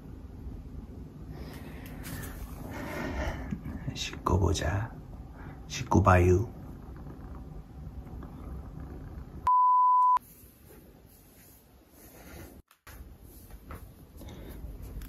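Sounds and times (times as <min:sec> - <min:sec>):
faint room sound: 0:00.0 - 0:15.0
high-pitched bleep tone: 0:09.5 - 0:10.2.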